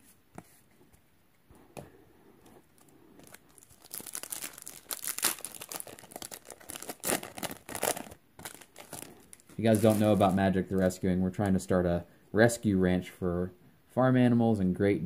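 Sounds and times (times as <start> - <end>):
foil wrapper tearing and crinkling: 3.2 - 10.4.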